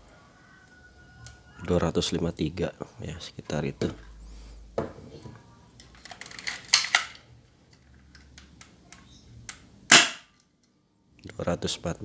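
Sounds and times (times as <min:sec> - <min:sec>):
pistol handling clicks: 0:08.1 - 0:10.5
sharp airsoft pistol shot: 0:09.9 - 0:10.3.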